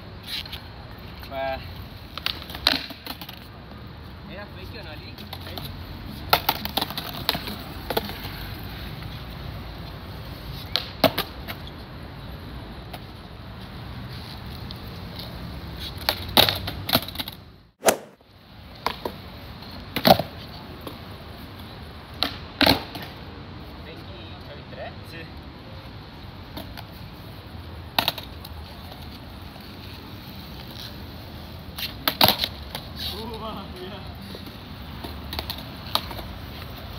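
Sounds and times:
skateboard clack: 2.1s - 3.5s, 6.3s - 8.5s, 10.7s - 11.7s, 27.9s - 29.0s, 31.8s - 32.9s, 35.0s - 36.8s
skateboard wheels rolling: 5.1s - 11.9s, 26.1s - 36.9s
skateboard tail popping: 17.8s - 18.2s.

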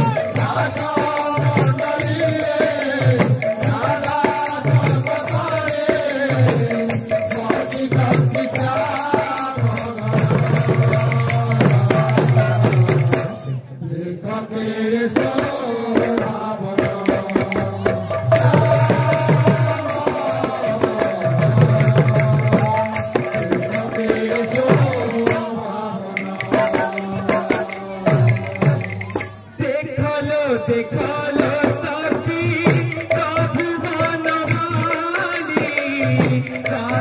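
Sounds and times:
barrel drums beaten fast: 0.0s - 13.4s, 15.2s - 25.6s, 26.2s - 29.5s.

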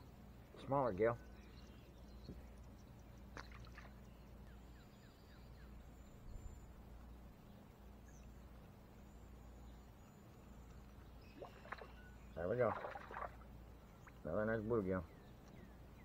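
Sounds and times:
faint high chirps: 8.0s - 14.3s.

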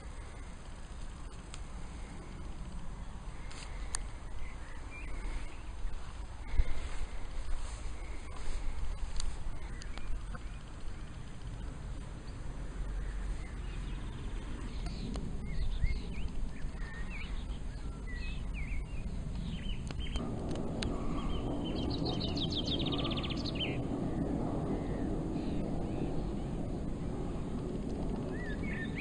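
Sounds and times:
small songbirds chirping: 0.0s - 29.0s
steady low rumble: 0.0s - 29.0s
bird trill: 2.0s - 6.8s, 7.5s - 27.5s, 28.2s - 29.0s.

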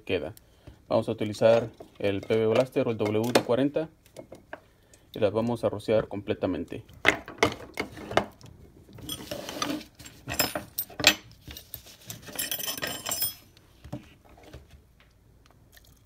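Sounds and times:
metal parts clinking on workbench: 9.0s - 13.5s.

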